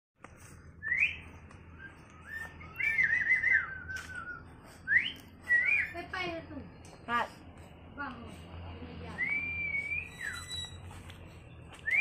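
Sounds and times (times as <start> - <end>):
whistled notes: 0.7 - 6.2, 9.1 - 11.0, 11.8 - 12.0.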